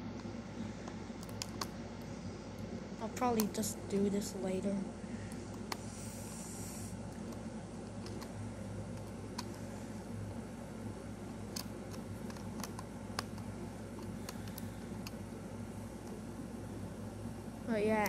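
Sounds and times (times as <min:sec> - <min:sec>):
air conditioner hum: 0:00.0 - 0:18.0
small plastic parts clicking: 0:11.5 - 0:15.2.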